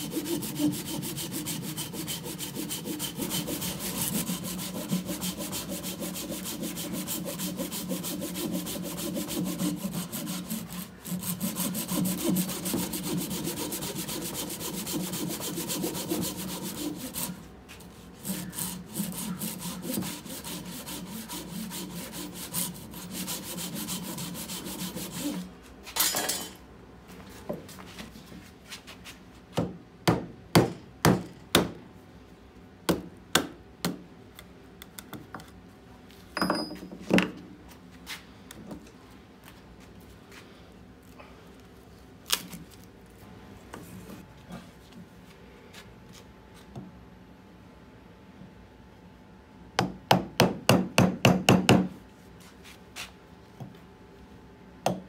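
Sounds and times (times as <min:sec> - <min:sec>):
handsaw cutting a log: 0:00.0 - 0:17.4, 0:18.0 - 0:25.4.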